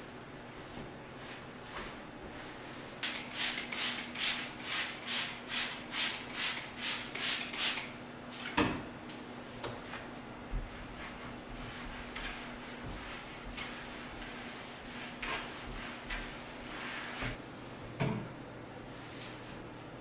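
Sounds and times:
cloth wiping cabinet door: 0.5 - 7.8, 9.7 - 17.4, 18.9 - 19.6.

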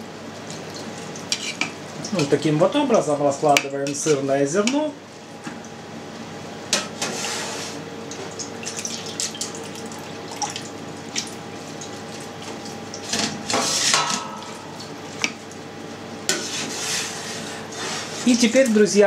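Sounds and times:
whey trickling and dripping: 8.1 - 13.1.

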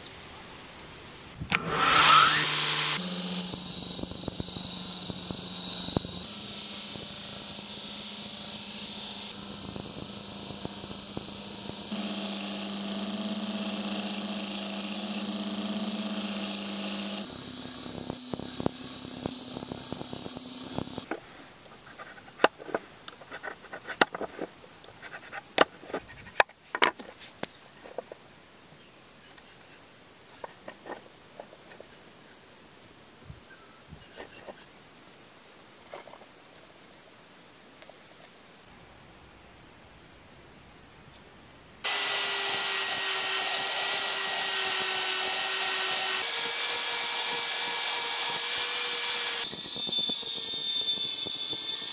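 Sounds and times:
belt grinder running: 1.5 - 21.1, 41.8 - 51.9.

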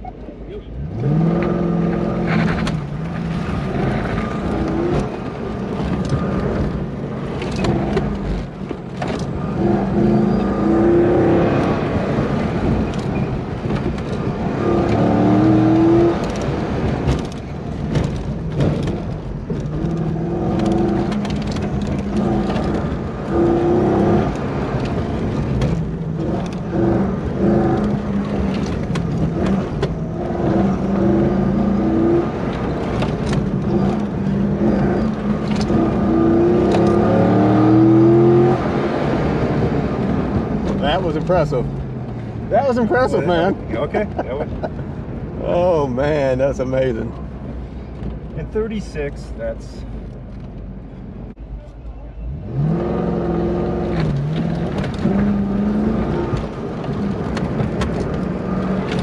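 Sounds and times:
car engine revving: 0.7 - 51.3, 52.3 - 59.0.

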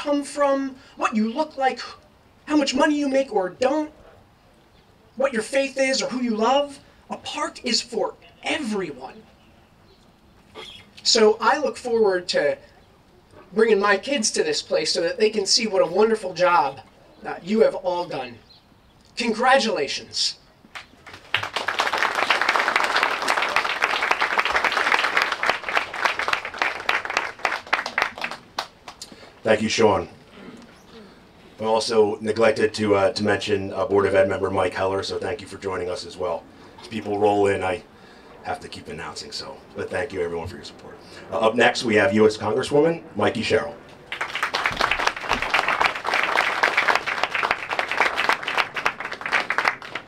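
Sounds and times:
crowd applauding: 20.7 - 29.0, 44.0 - 50.0.

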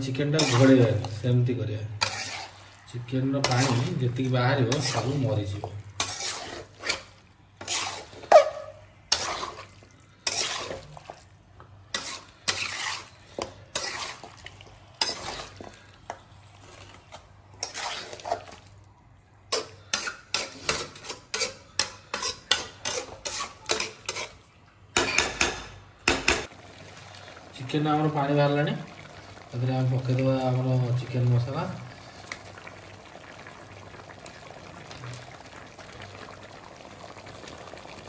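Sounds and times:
spatula scraping metal wok: 0.0 - 11.2, 11.9 - 18.7, 19.5 - 24.4.

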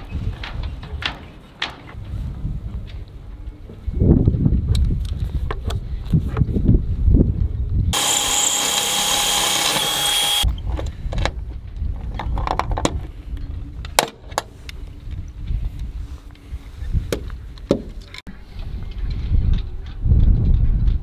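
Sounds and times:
power drill whining: 8.0 - 10.5.

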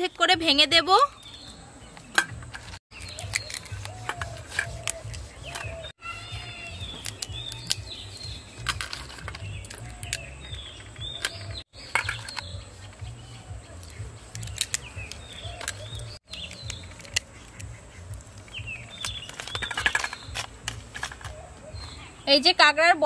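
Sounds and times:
small birds chirping: 0.0 - 23.0
crab shells cracking: 13.9 - 17.8.

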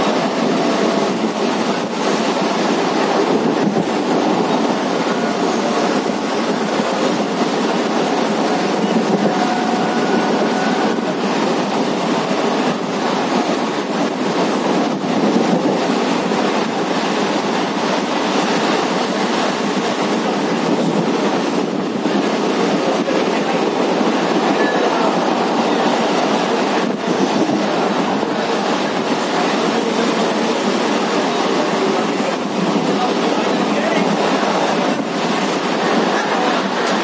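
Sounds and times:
train wheels on rail: 0.0 - 37.0
wind: 0.0 - 37.0.

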